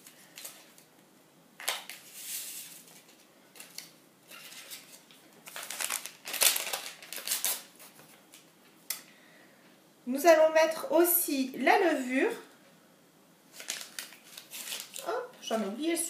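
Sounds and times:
paper sachet crinkling and tearing: 1.6 - 8.1, 13.5 - 15.1.

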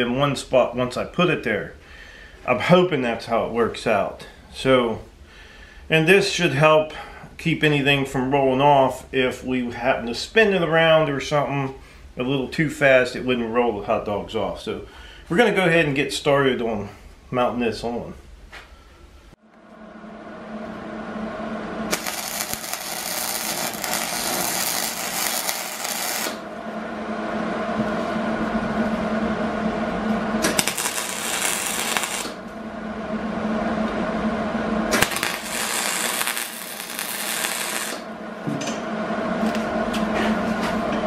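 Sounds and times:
welder hum: 19.4 - 41.0
welding arc crackling: 21.9 - 26.6, 30.4 - 32.6, 34.8 - 38.3.

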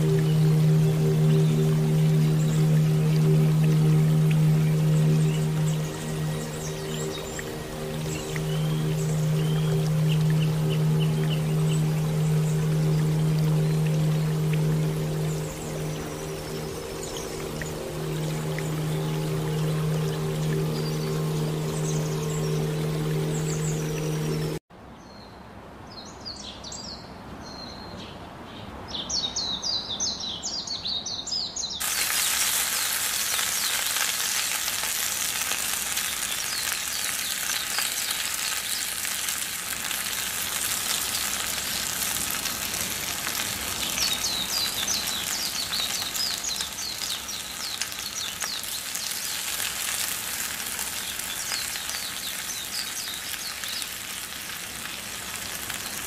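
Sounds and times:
birds chirping: 0.0 - 24.6, 39.8 - 54.2
onions sizzling in hot oil: 31.8 - 56.0.

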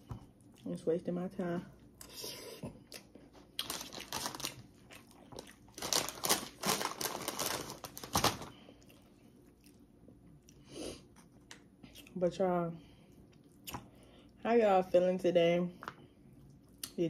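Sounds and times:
packaging crinkling and rustling: 3.6 - 4.7, 5.7 - 8.6.

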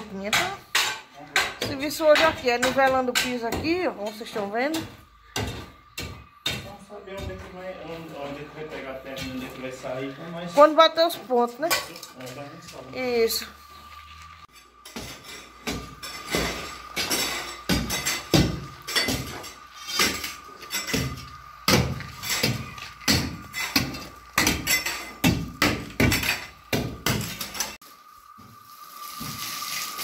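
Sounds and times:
hoe scraping gravelly dirt: 12.2 - 25.2
water spraying from hose: 13.8 - 30.0.

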